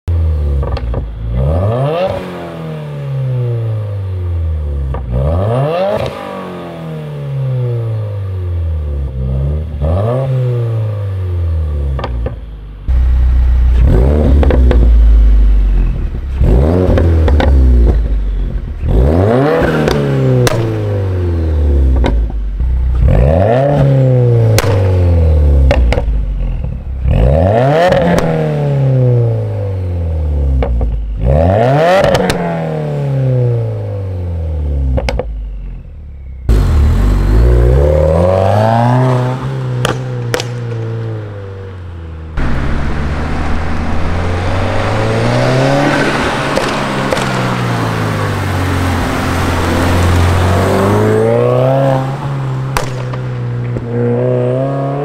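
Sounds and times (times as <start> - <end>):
car engine revving: 0.1 - 55.0
exhaust crackles and pops: 13.7 - 15.1, 15.8 - 19.0, 19.8 - 20.8, 24.5 - 24.9, 25.6 - 26.8, 39.8 - 41.0, 42.3 - 48.3, 52.7 - 53.9.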